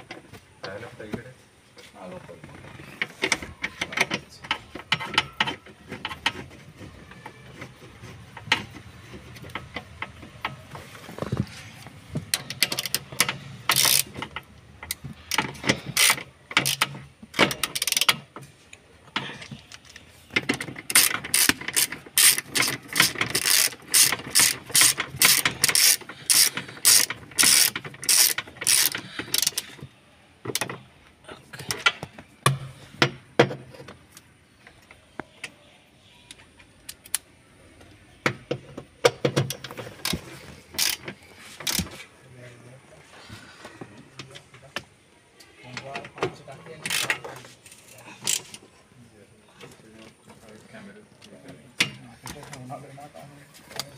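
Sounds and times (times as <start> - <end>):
ratchet wrench clicking: 12.3 - 16.9, 17.5 - 18.2, 20.9 - 29.8, 40.8 - 41.0.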